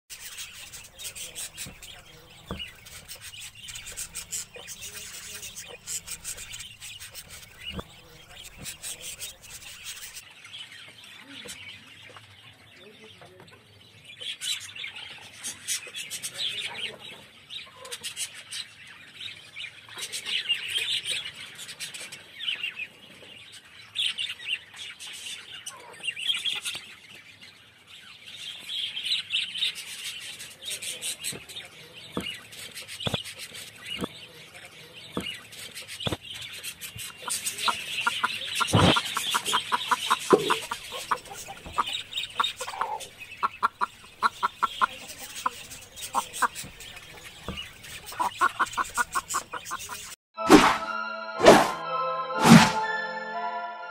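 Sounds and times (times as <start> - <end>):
caged birds chirping: 0.1 - 50.2
hen clucking: 0.2 - 10.2, 37.0 - 50.2.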